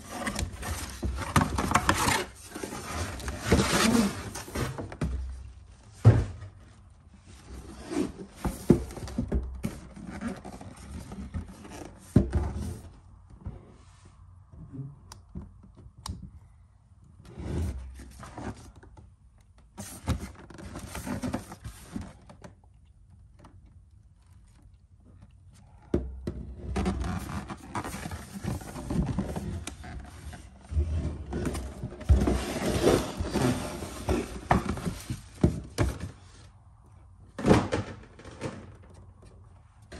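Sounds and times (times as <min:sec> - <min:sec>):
cardboard box scrapes and knocks: 0:00.0 - 0:12.9, 0:26.4 - 0:36.5.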